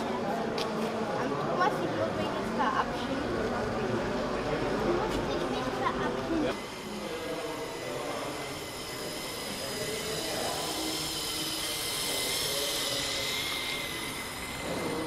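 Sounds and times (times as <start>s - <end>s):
toy train motor whirring: 4.1s - 15.0s.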